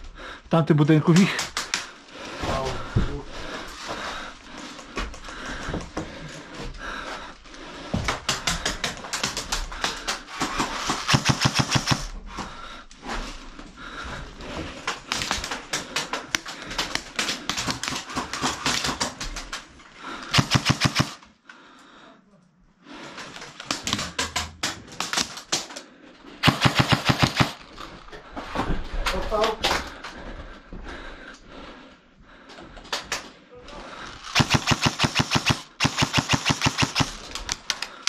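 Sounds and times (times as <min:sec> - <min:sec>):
airsoft guns firing bursts: 0:10.3 - 0:12.2, 0:20.3 - 0:21.2, 0:26.4 - 0:27.6, 0:34.2 - 0:37.8.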